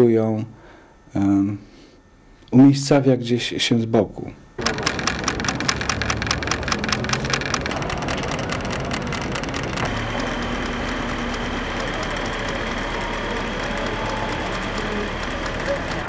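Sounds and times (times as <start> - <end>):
small motor mechanism clicking and whirring: 4.6 - 16.0.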